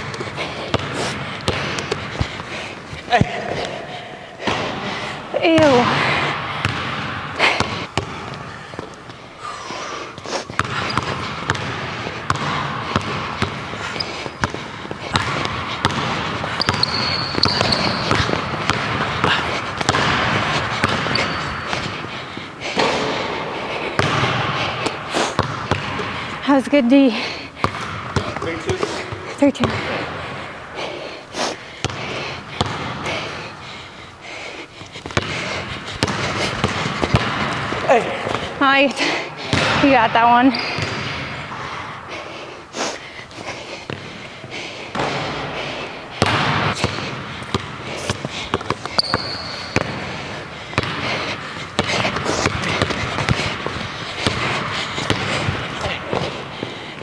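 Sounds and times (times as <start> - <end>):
basketball bouncing on wood floor: 6.6 - 8.9, 10.5 - 22.0, 23.9 - 26.2, 27.6 - 28.4, 31.8 - 33.3, 35.1 - 41.1, 46.2 - 51.2, 51.8 - 56.3
sneaker squeak: 10.5 - 11.2, 13.8 - 14.6, 15.9 - 18.4, 20.8 - 21.8, 40.5 - 41.0, 48.8 - 50.0.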